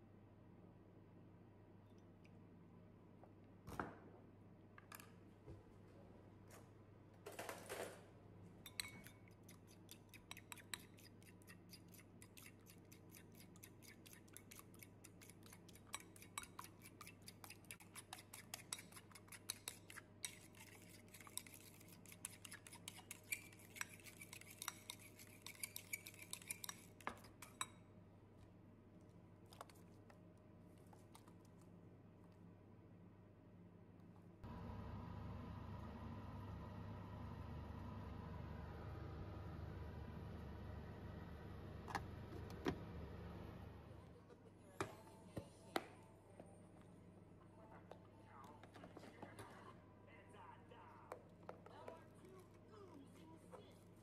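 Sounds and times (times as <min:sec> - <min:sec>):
fork clinking against ceramic bowl: 0:08.6 - 0:27.8.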